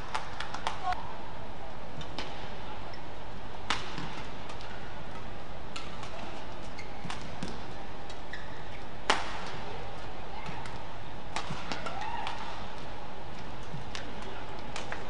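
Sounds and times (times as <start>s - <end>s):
rackets striking shuttlecock: 3.6s - 8.4s, 9.0s - 9.6s, 10.4s - 12.6s.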